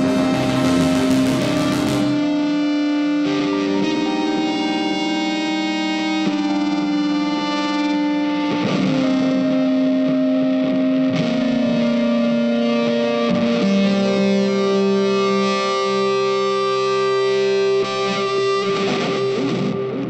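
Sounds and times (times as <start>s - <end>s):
slow background music: 0.0s - 6.0s.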